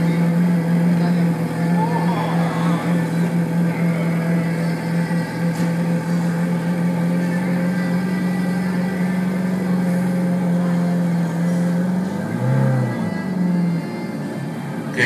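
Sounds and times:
sports car engine idling: 0.0 - 15.0.

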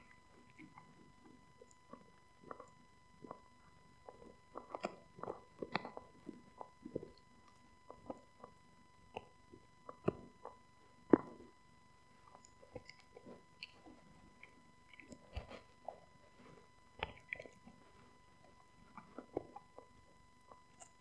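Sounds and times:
dog chewing bone: 0.4 - 7.2, 18.4 - 21.0.

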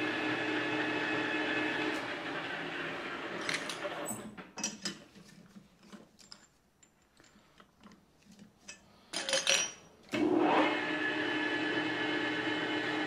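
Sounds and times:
metal lathe running down: 0.0 - 4.2, 10.2 - 13.0.

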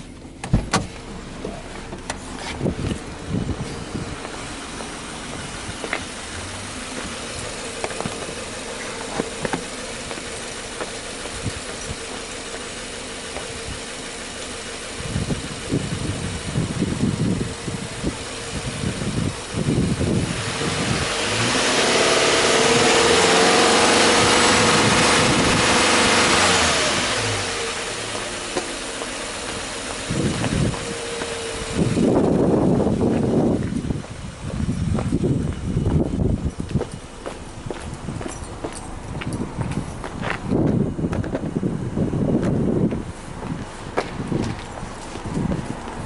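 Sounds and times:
low thumps: 0.0 - 12.2
car engine idling: 0.0 - 46.0
engine revving: 0.8 - 34.0.

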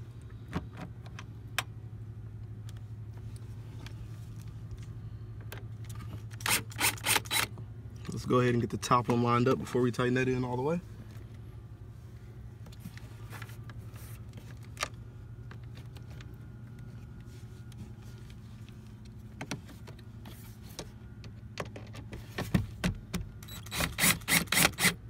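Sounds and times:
low steady hum: 0.0 - 25.0
power drill driving screw: 6.4 - 7.5, 23.5 - 25.0.

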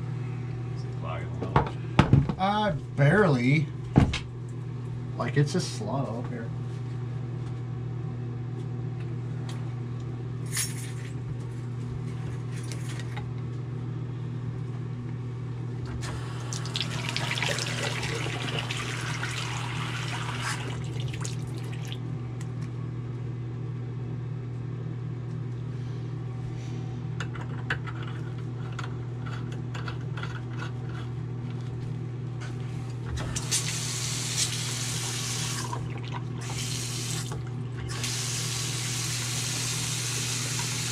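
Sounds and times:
steady low hum: 0.0 - 40.9
faucet running into sink: 16.1 - 22.0, 33.4 - 40.9.

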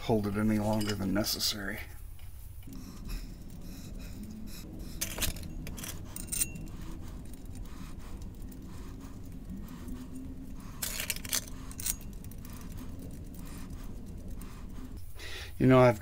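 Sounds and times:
bolts clinking in metal dish: 0.6 - 1.2.

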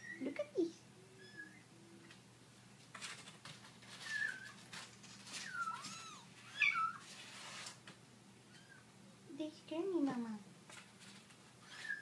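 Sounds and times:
kittens mewing: 4.0 - 7.1.

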